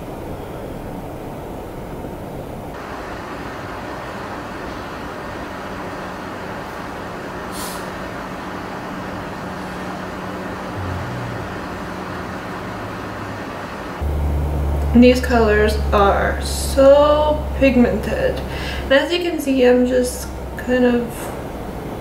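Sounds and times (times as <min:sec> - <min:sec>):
continuous background rush: 0:08.1 - 0:22.0
faint steady hum: 0:08.3 - 0:22.0.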